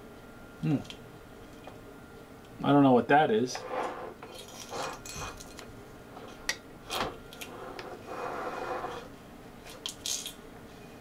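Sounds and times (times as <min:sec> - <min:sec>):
camera cable scraping inside metal tank: 0:03.6 - 0:05.0, 0:07.4 - 0:09.1.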